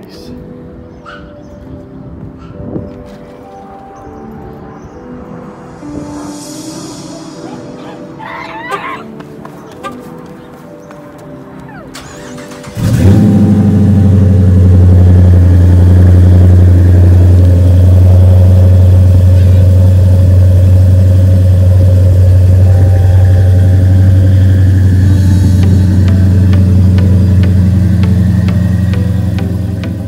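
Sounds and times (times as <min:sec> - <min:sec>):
car engine starting: 0:11.9 - 0:30.0
car engine idling deep exhaust: 0:12.7 - 0:30.0.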